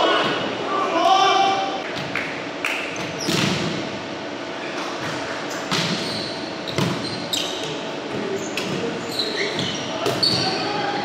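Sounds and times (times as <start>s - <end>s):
sneakers squeaking on hardwood: 5.1s - 10.8s.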